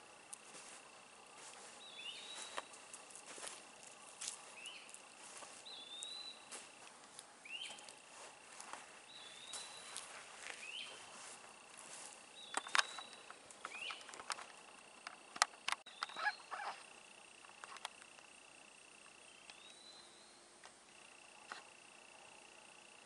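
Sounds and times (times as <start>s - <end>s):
footsteps crunching on sand and twigs: 0.0s - 15.0s
bird two-part call: 15.9s - 16.8s.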